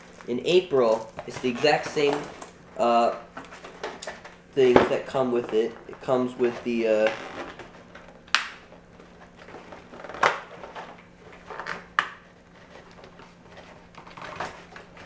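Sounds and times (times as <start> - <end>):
packaging knocks and scrapes: 0.9 - 2.5.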